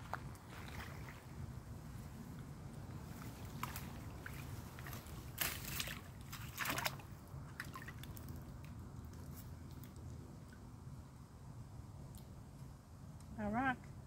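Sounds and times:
water splashing: 0:03.3 - 0:08.6.

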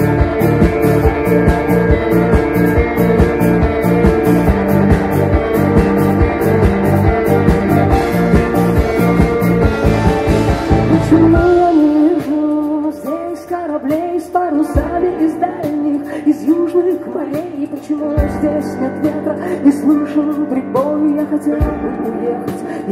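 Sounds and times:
rock band playing live: 0:00.0 - 0:22.9
woman singing: 0:10.9 - 0:22.9.

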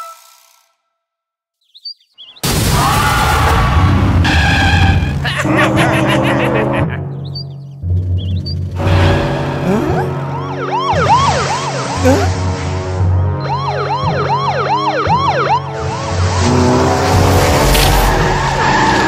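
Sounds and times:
action background music: 0:04.2 - 0:19.0.

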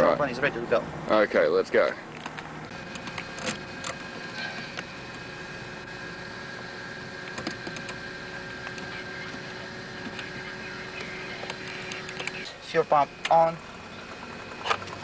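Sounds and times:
steady electrical hum: 0:02.5 - 0:15.0
faint thin whining tones: 0:02.7 - 0:15.0
radio knob clicks: 0:11.0 - 0:12.4.

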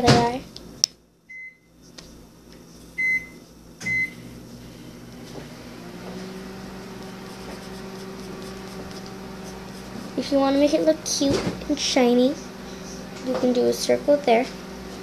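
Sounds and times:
microwave oven humming: 0:00.0 - 0:15.0
microwave keypad beeping: 0:01.3 - 0:01.7, 0:03.0 - 0:04.2.

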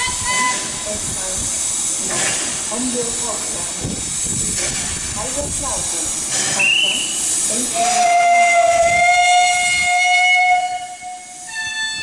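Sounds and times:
steam hissing: 0:00.0 - 0:12.0
steam whistle blast: 0:07.8 - 0:12.0.

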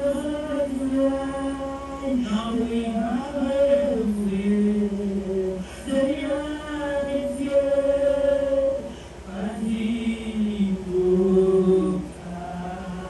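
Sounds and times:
voices singing a slow chant: 0:00.0 - 0:13.0.

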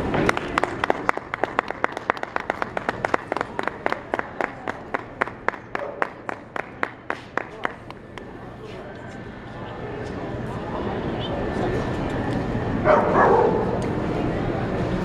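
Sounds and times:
people clapping in rhythm: 0:00.0 - 0:08.3.

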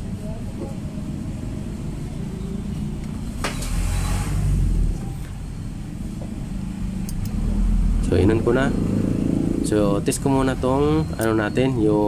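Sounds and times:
engine rumble: 0:00.0 - 0:12.0
sharp click: 0:07.0 - 0:07.4.

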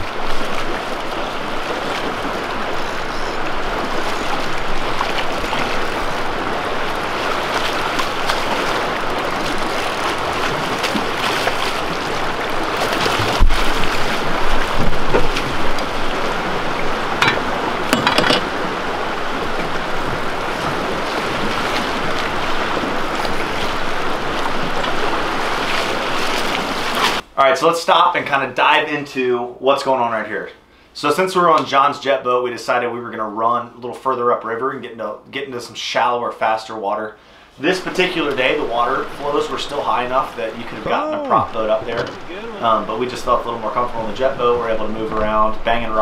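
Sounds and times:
river current rushing: 0:00.0 - 0:27.2, 0:37.6 - 0:46.0.

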